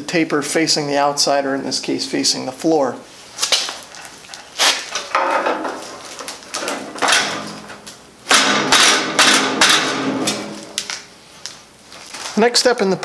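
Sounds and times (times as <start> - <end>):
metal frame scraping: 3.9 - 11.0
frame thudding on cardboard: 5.0 - 10.8
sharp knock on steel frame: 6.6 - 10.8.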